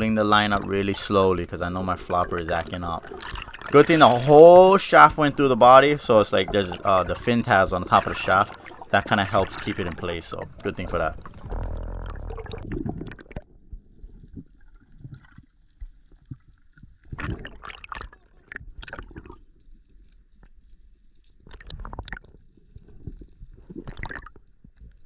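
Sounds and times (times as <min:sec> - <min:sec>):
bursts of water noise: 0:00.0 - 0:15.5
faint crackles: 0:00.0 - 0:25.0
underwater rumble: 0:00.0 - 0:25.0.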